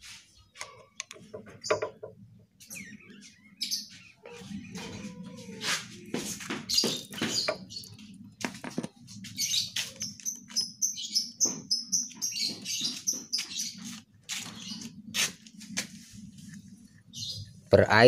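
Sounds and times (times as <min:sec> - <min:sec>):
small bird chirping: 0:00.4 - 0:08.3, 0:09.1 - 0:15.3, 0:16.6 - 0:17.6.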